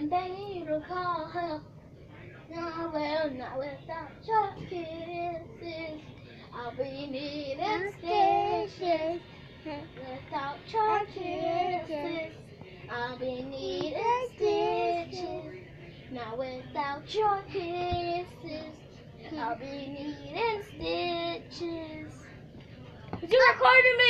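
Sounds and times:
boy singing unaccompanied: 0:12.9 - 0:15.5.

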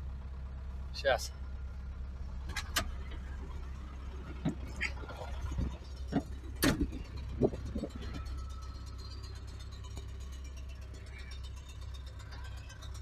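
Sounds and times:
low engine drone: 0:00.0 - 0:13.0
knocks and rattles in cab: 0:04.0 - 0:08.4.

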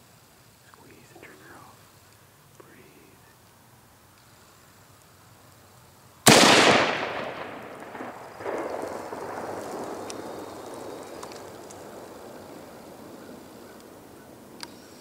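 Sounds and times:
rifle shot: 0:06.2 - 0:13.3
echoing rumble: 0:06.3 - 0:14.6.

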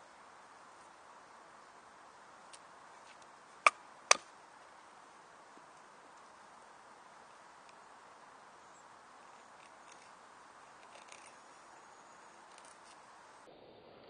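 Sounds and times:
background hiss: 0:00.0 - 0:14.0
knife shaving wood: 0:09.4 - 0:11.5.

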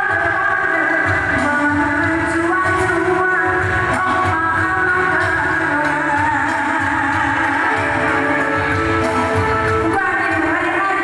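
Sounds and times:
music over a pa system: 0:00.0 - 0:11.0.

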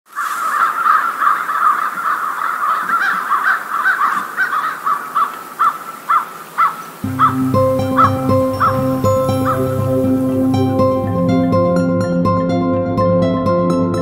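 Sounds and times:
chorus of animal calls: 0:00.1 - 0:10.3.

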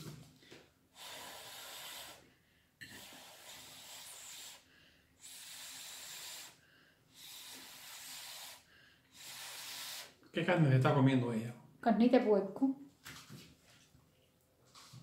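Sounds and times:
person breathing: 0:00.5 - 0:10.2.

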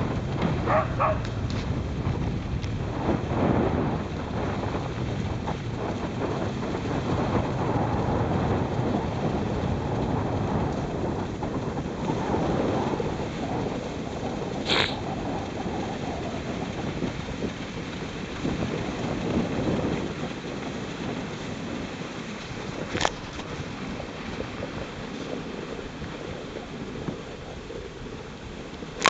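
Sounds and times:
sled runners scraping on snow: 0:00.0 - 0:29.0
wind on the microphone: 0:00.0 - 0:29.0
short sharp sound: 0:14.7 - 0:15.0.

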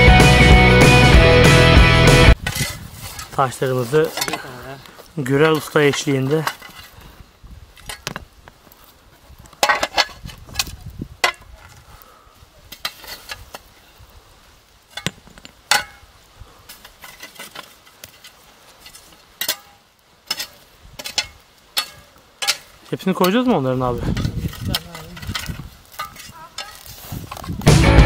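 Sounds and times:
shovel scraping through ashes: 0:02.3 - 0:11.8, 0:12.6 - 0:13.9, 0:14.8 - 0:27.6
shovel clinking against stones: 0:04.0 - 0:04.6, 0:16.8 - 0:23.5, 0:24.1 - 0:27.5.

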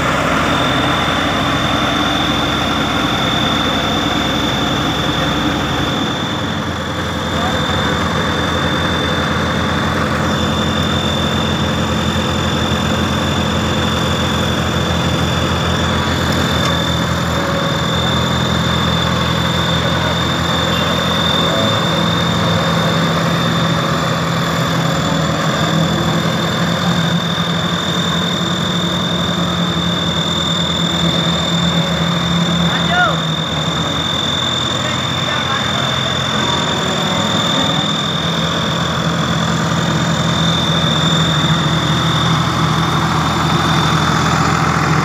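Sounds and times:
high whine: 0:00.0 - 0:45.0
road roller engine running: 0:00.0 - 0:45.0.

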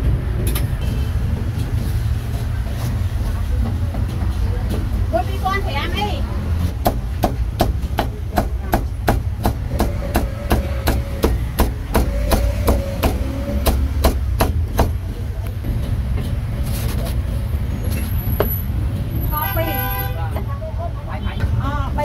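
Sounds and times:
cleaver chopping on cutting board: 0:06.8 - 0:15.0.

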